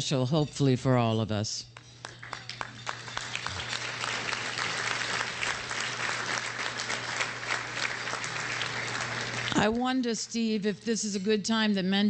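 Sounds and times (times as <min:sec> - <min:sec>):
low electrical hum: 0:00.0 - 0:12.0
crowd applauding: 0:01.9 - 0:09.6.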